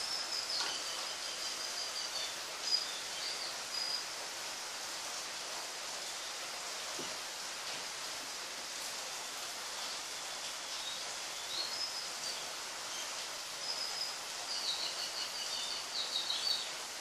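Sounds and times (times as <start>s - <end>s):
background hiss: 0.0s - 17.0s.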